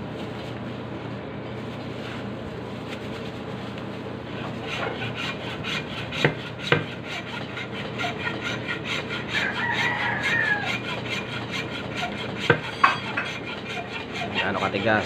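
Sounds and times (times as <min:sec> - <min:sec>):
hacksaw rasping: 0:04.4 - 0:15.0
rooster crowing: 0:09.3 - 0:11.0.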